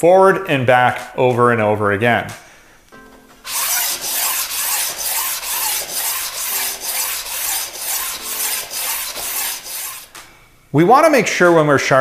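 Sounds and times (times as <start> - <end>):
sharpening stone rasping on blades: 3.5 - 10.1.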